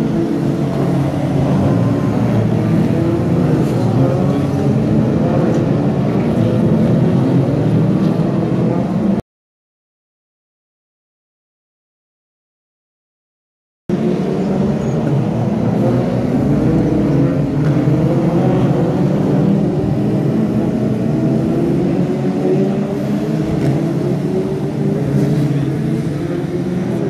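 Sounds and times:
stock car engines racing: 0.0 - 9.2, 13.9 - 27.0.

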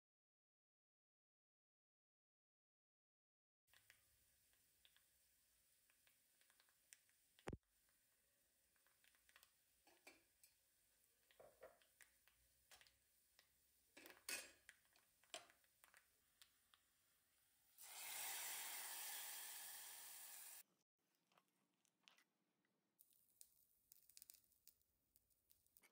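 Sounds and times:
hot oil sizzling in curry: 17.8 - 20.6.

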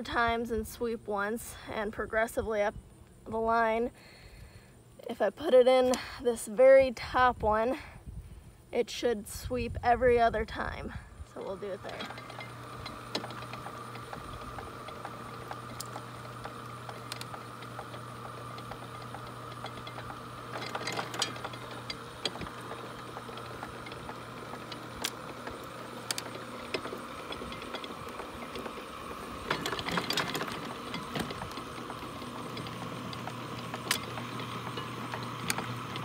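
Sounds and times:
electric motor hum: 11.1 - 36.0
rakes clanking: 11.3 - 36.0
clatter of gears and chain: 14.3 - 28.7, 29.4 - 36.0.

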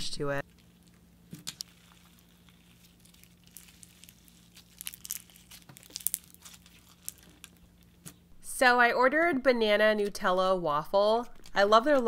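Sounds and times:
slime crackling and clicking: 0.4 - 8.2.

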